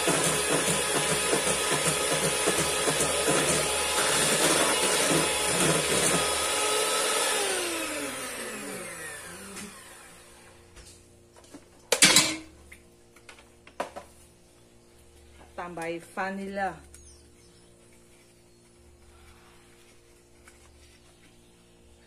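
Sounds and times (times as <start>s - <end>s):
electric mixer whine: 0.0s - 10.7s.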